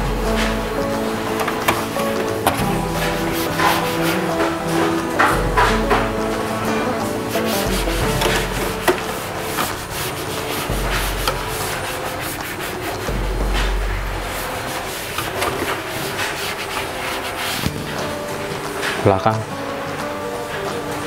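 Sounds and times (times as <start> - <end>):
cloth wiping plastic: 0.1 - 19.2.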